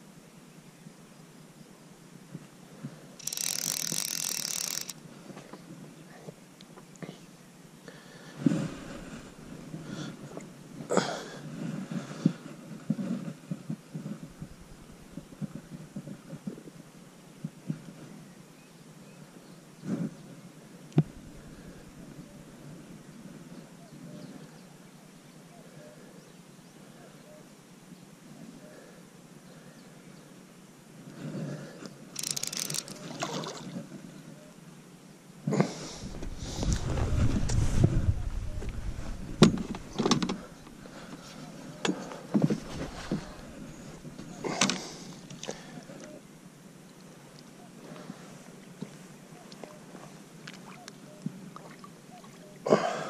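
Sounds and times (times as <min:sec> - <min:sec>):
camera handling knocks and rubbing: 0:38.8 - 0:40.7.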